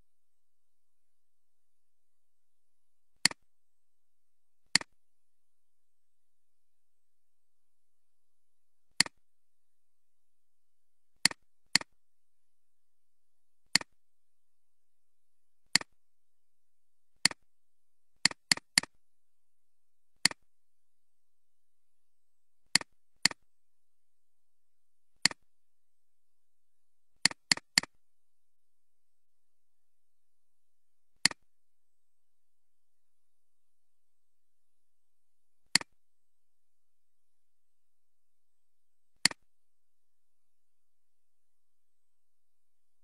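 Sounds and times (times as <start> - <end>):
mouse clicking: 3.2 - 3.4, 4.7 - 5.0, 9.0 - 9.2, 13.7 - 13.9, 15.7 - 16.0, 18.2 - 19.0, 20.2 - 20.4, 22.7 - 23.4, 25.2 - 25.4, 27.2 - 28.0, 31.2 - 31.4, 35.7 - 36.0, 39.2 - 39.4.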